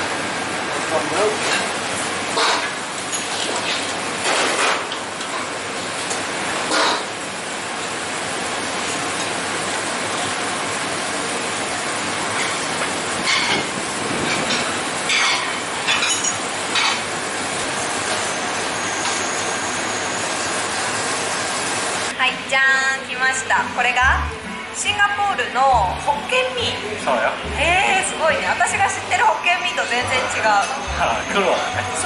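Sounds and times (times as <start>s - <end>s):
plates clattering on metal counter: 13.2s - 17.0s.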